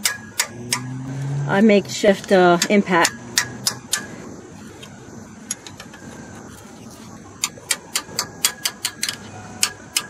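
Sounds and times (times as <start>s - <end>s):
hammer striking wrench: 0.0s - 0.9s, 2.6s - 4.1s, 7.4s - 10.0s.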